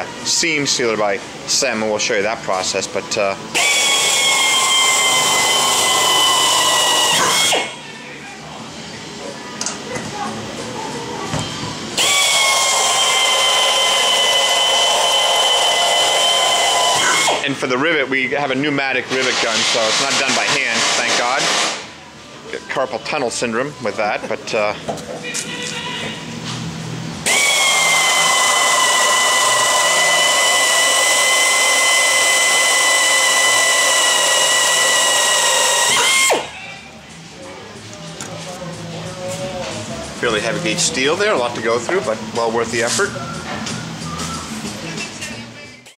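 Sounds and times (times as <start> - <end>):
pneumatic air tool whining: 3.5 - 7.8, 12.0 - 17.5, 19.2 - 21.9, 27.2 - 36.7.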